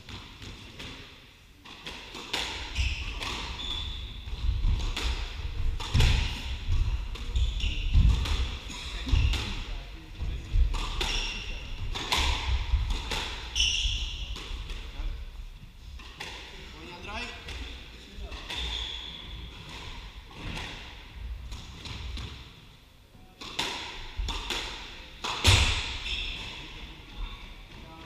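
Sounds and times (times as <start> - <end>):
shoes squeaking: 2.4 - 5.3, 6.8 - 9.6, 10.8 - 12.0, 13.2 - 14.4, 18.2 - 20.0, 25.8 - 26.7.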